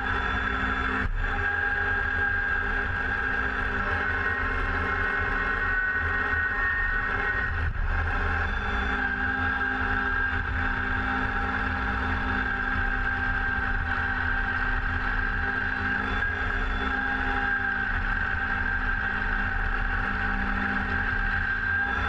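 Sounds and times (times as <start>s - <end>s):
high whine: 0.0s - 22.0s.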